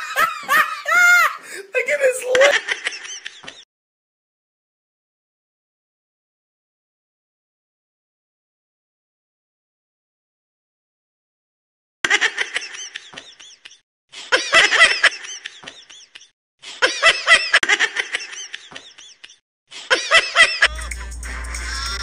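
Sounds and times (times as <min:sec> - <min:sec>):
laughter: 0:00.0 - 0:01.4, 0:02.3 - 0:03.7, 0:12.0 - 0:20.8.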